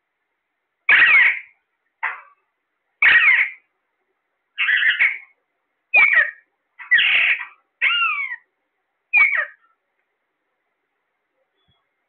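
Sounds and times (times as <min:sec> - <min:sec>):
parakeets screeching: 0:00.9 - 0:02.2, 0:03.0 - 0:03.7, 0:04.6 - 0:05.3, 0:06.0 - 0:08.5, 0:09.1 - 0:09.6.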